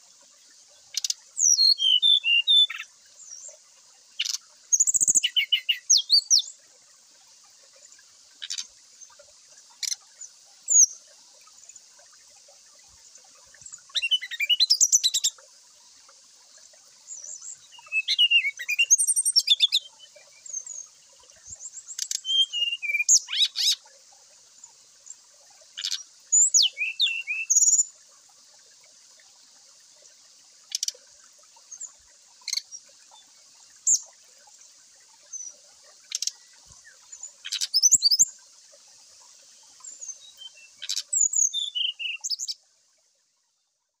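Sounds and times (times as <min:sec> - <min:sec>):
flycatcher singing trills: 0:17.1 - 0:20.8, 0:21.4 - 0:23.8, 0:25.8 - 0:27.8.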